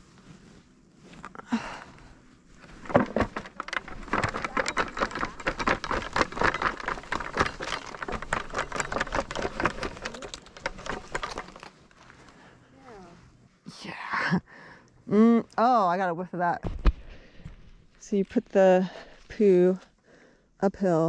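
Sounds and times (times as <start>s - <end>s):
wood-chip bedding crackling: 0.4s - 13.3s.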